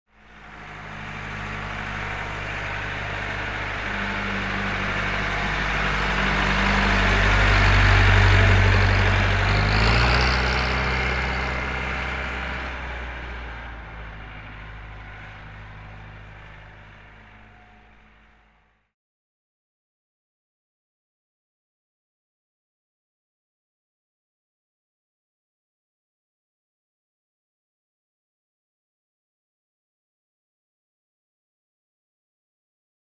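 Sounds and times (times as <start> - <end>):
diesel engine passing by: 0.1 - 18.9.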